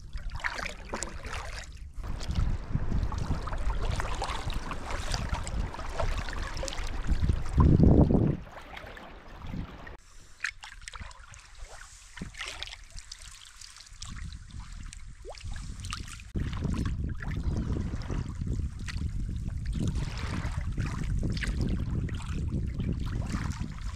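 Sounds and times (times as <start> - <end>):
water splashes and drips: 0.0 - 23.9
paddle dipping into water: 0.1 - 23.9
wind rumbling on microphone: 1.1 - 10.0, 13.9 - 23.9.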